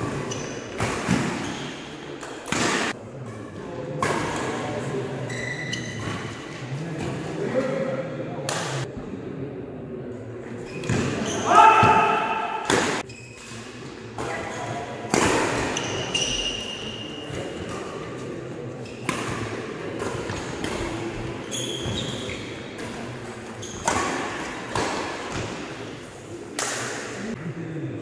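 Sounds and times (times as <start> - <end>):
court shoes squeaking: 0.0 - 4.6, 5.2 - 7.1, 10.6 - 26.0
racquet striking shuttlecock: 23.8 - 25.6.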